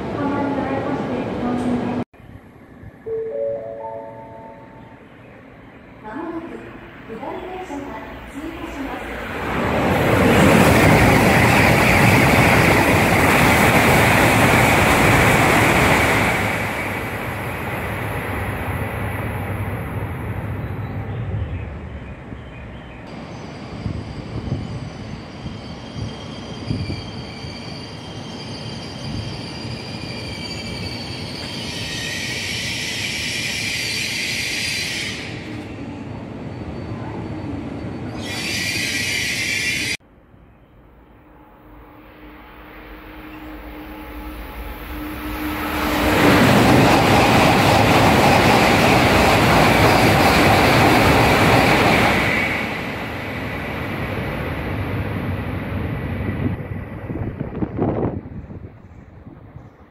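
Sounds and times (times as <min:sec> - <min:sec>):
high-speed train passing: 0:00.0 - 0:59.9
train high whine: 0:00.0 - 0:59.9
train low rumble: 0:40.0 - 0:59.9.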